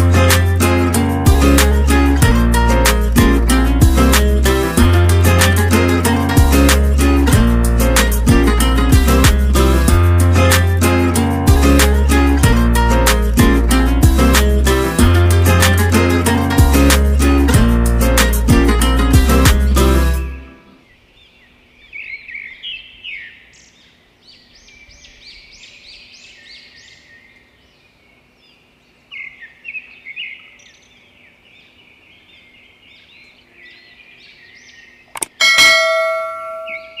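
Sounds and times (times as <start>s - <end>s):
small birds chirping: 18.8s - 35.4s, 36.4s - 37.0s
click: 35.1s - 35.4s
ringing bell chime: 35.4s - 37.0s.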